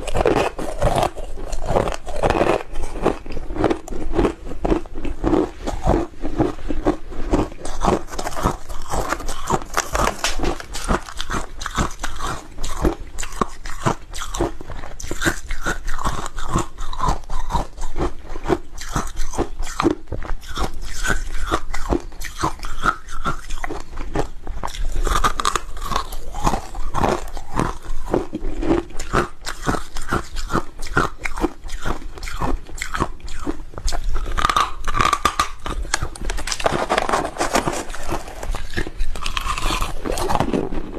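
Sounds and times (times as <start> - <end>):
ice being chewed: 0.0 - 40.9.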